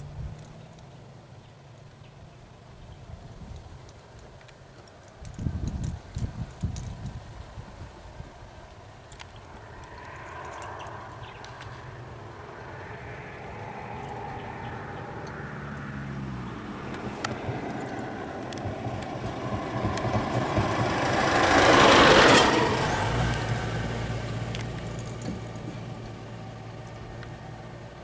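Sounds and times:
vehicle engines running: 0.0s - 28.0s
vehicle passing: 8.8s - 28.0s.

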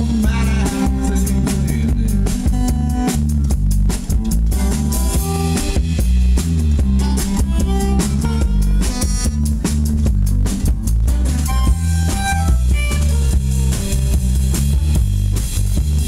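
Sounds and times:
acoustic guitar: 0.0s - 16.0s
drum kit beat: 0.0s - 16.0s
electric bass: 0.0s - 16.0s.

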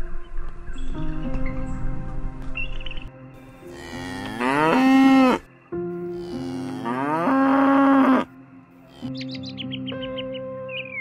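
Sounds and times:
cow mooing: 3.6s - 5.5s, 6.1s - 8.3s.

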